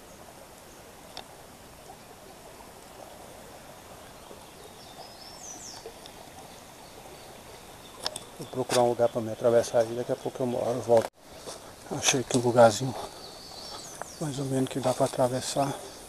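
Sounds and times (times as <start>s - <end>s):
creek running: 0.0s - 16.0s
bird calling: 3.9s - 16.0s.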